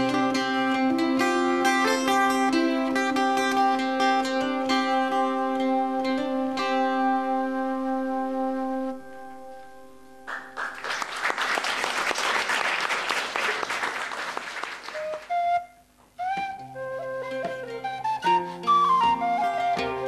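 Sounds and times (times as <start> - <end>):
ringing folk chord: 0.0 - 10.6
audience applause: 10.3 - 15.3.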